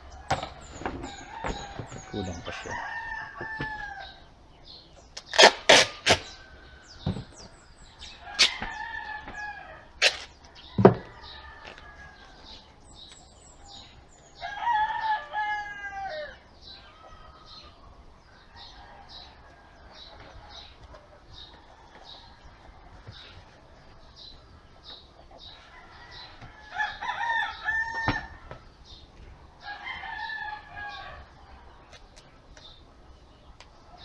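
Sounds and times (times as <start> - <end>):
chicken calls: 0.0 - 34.0
rooster crowing: 0.2 - 4.3, 8.2 - 10.0, 10.6 - 12.6, 14.4 - 17.8, 25.6 - 28.6, 29.6 - 31.3.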